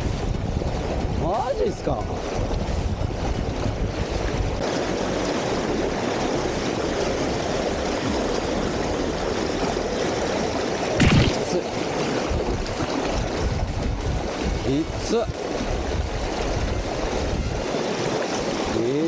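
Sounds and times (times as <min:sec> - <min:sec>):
river current rushing: 0:00.0 - 0:19.0
white water splashing: 0:00.0 - 0:19.0
thump or slap: 0:11.0 - 0:11.6.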